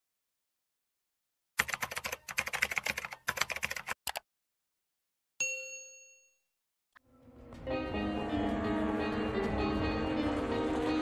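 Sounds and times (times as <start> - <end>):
notification bell ding: 5.4 - 6.4.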